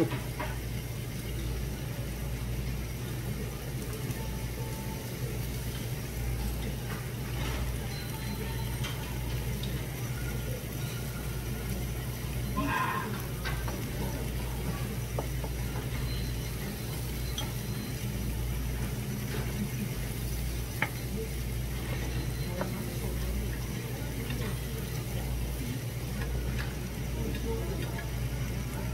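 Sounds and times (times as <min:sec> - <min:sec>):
restaurant room hum: 0:00.0 - 0:28.9
dishes and utensils clinking: 0:06.6 - 0:11.5, 0:13.0 - 0:18.0
faint voice: 0:08.4 - 0:15.1.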